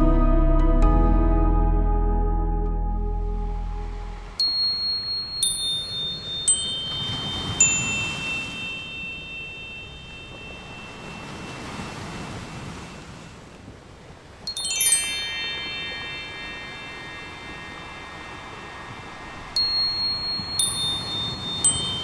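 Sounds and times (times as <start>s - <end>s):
chime music: 2.9s - 12.3s, 14.5s - 22.0s
soft wash: 3.4s - 22.0s.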